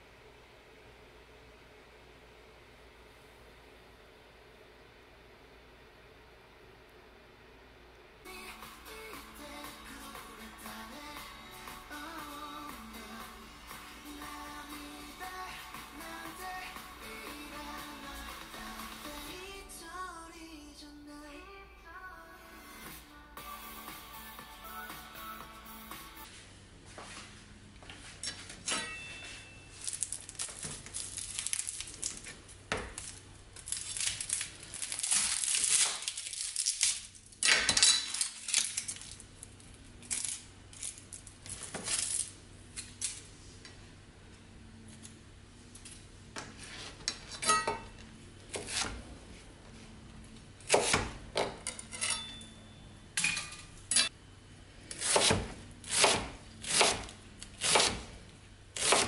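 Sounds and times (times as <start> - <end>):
onion skin crackling and tearing: 29.8 - 37.4, 38.1 - 42.4.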